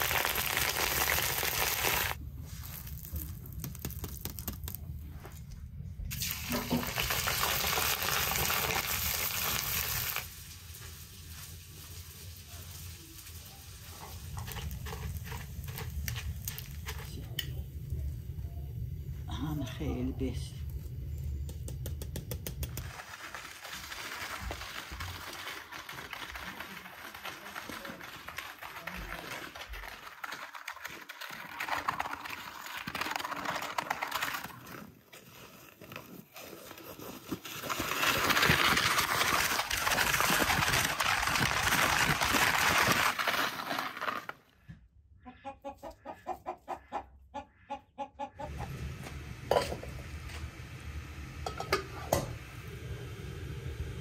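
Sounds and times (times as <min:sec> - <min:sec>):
sled sliding over icy snow: 0:00.0 - 0:05.2, 0:06.1 - 0:17.4, 0:22.8 - 0:44.5
chickens clucking: 0:45.2 - 0:48.8.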